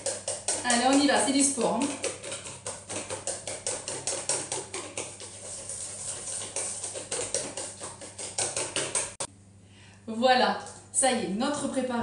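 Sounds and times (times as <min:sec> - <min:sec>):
whisk clattering in metal bowl: 0:00.0 - 0:09.3.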